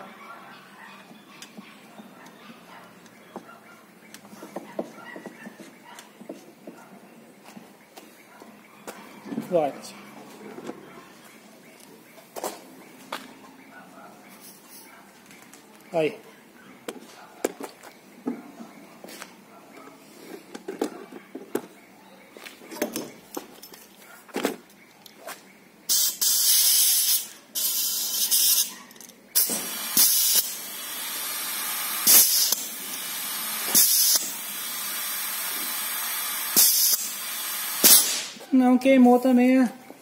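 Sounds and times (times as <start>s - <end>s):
compressed air hissing: 25.9s - 28.7s, 29.4s - 38.4s.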